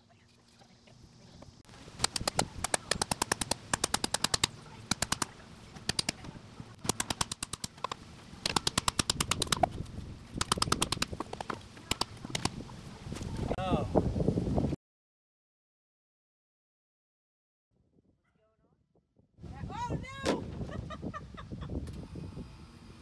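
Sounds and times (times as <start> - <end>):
hammer striking wooden stakes: 2.0 - 9.8, 10.4 - 12.5.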